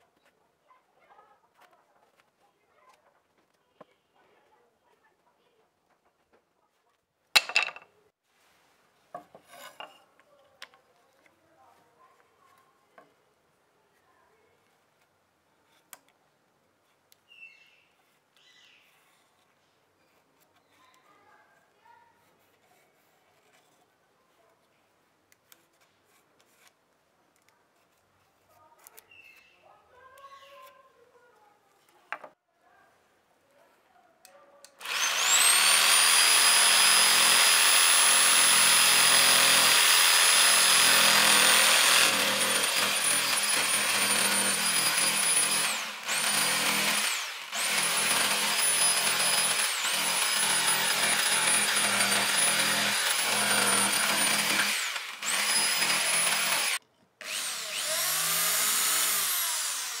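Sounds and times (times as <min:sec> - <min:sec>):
cordless drill spinning: 0:34.7 - 1:00.0
jigsaw cutting wood: 0:34.8 - 1:00.0.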